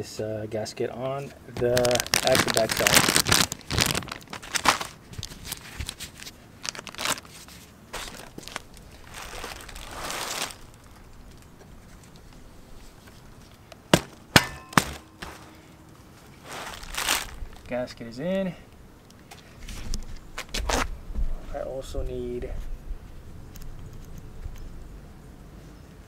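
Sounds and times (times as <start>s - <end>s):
bubble wrap crinkling: 1.6s - 14.2s, 16.2s - 17.8s.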